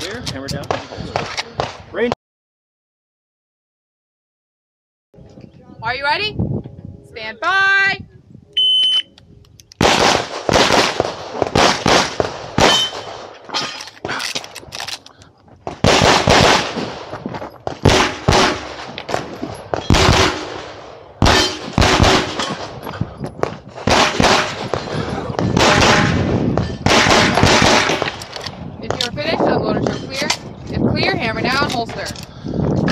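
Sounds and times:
rapid pistol shots: 9.8s - 13.4s, 15.7s - 28.3s.

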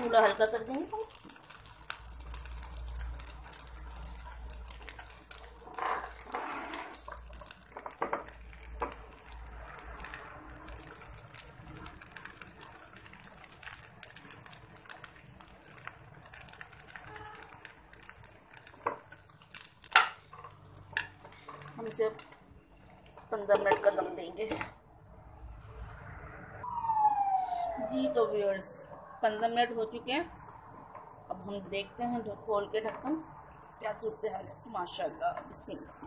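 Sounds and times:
rice bubbling and crackling: 0.0s - 24.8s.

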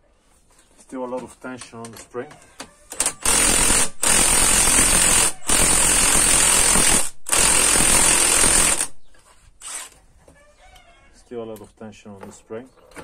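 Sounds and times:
impact wrench hammering: 3.0s - 8.9s.

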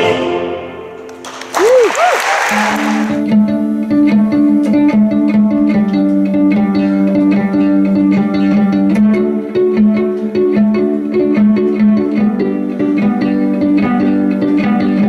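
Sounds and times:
violin plucked pizzicato riff: 3.0s - 15.0s.

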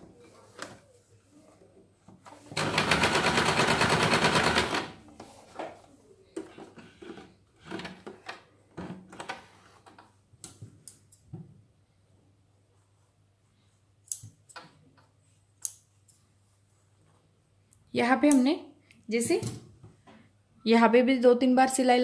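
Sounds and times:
sewing machine stitching fast: 2.6s - 5.0s.

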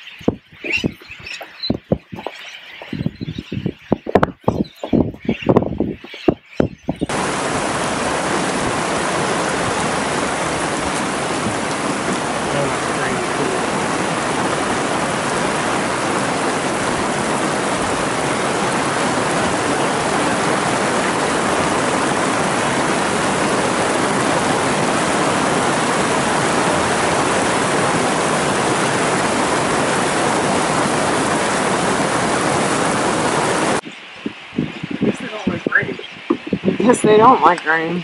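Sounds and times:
heavy rain on sea surface: 7.0s - 33.8s.

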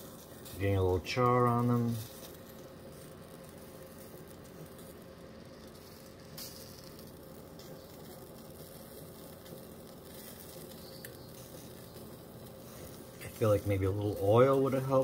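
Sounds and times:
mushrooms sizzling in a pan: 0.0s - 15.0s.

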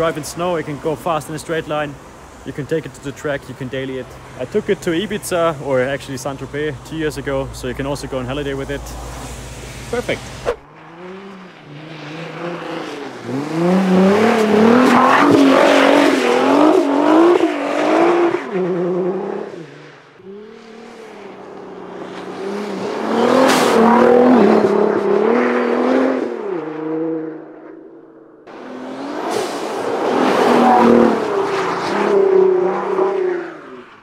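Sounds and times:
car engine revving hard: 10.3s - 27.6s, 28.5s - 33.8s.

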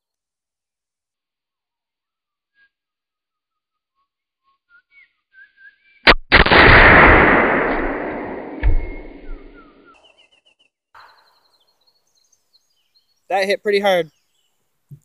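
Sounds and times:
bird chirps: 4.0s - 6.1s, 8.9s - 14.7s
gunshot: 6.1s - 9.9s.

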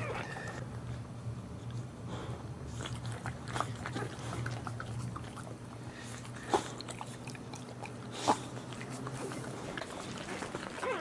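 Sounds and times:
steady low hum: 0.0s - 11.0s
dog chewing and licking: 2.7s - 11.0s.

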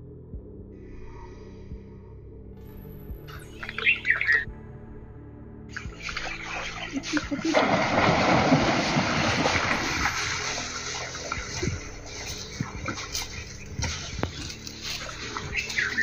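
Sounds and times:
water splashing and sloshing: 5.7s - 16.0s.

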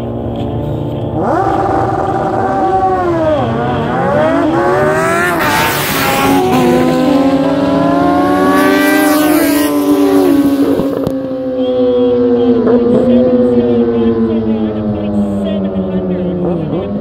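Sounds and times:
motorcycle accelerating hard: 0.0s - 17.0s.

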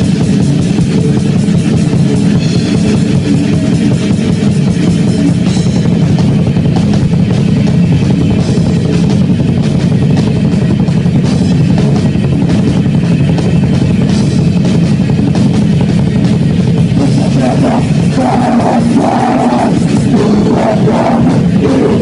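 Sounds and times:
electric guitar: 0.0s - 22.0s
hard-hit drums: 0.0s - 22.0s.

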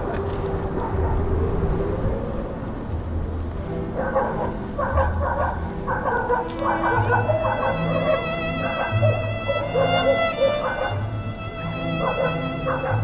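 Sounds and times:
dog barking: 0.0s - 1.3s, 3.9s - 11.1s, 11.8s - 13.0s
steady low rumble: 0.0s - 6.0s.

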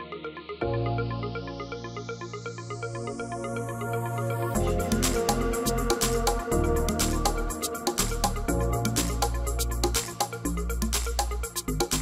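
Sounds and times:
music with quick drum beat: 4.8s - 12.0s.

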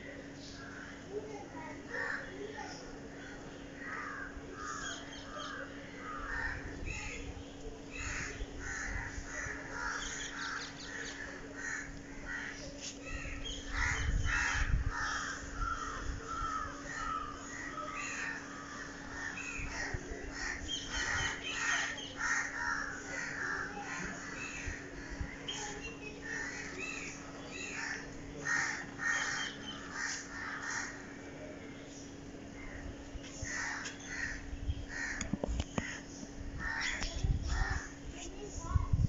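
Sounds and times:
faint steady hum: 0.0s - 39.0s
birds calling: 0.2s - 38.8s
crows cawing: 1.9s - 2.4s, 3.8s - 6.8s, 7.9s - 25.4s, 26.2s - 31.2s, 33.4s - 38.0s.

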